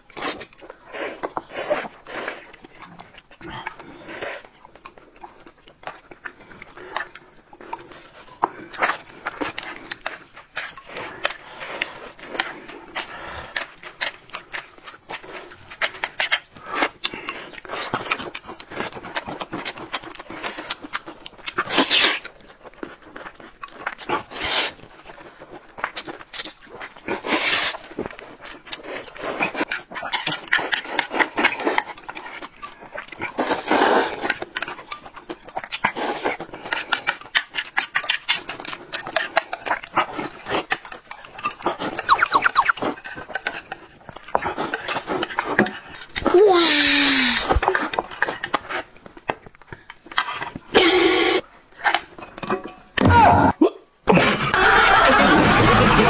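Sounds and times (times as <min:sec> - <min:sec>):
chewing: 0:00.0 - 0:53.0
people slurping noodles: 0:00.2 - 0:48.9, 0:50.0 - 0:52.0, 0:53.0 - 0:56.0.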